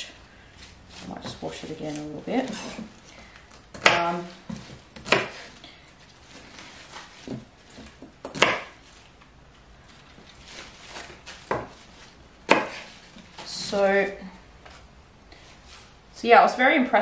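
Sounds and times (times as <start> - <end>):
knife chopping on wooden board: 3.7 - 5.5, 7.2 - 8.8, 11.4 - 11.8, 12.5 - 12.9.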